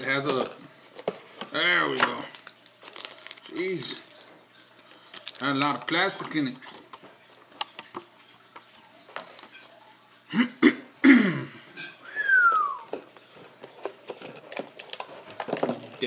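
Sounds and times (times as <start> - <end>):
plastic packaging crinkling: 0.0 - 9.7, 13.0 - 16.0
person coughing: 10.3 - 11.6.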